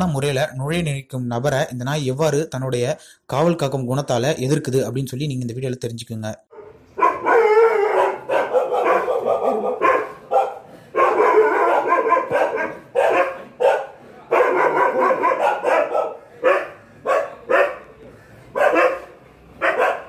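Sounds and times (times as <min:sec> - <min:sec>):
dog barking: 0:06.5 - 0:17.9, 0:18.5 - 0:20.0.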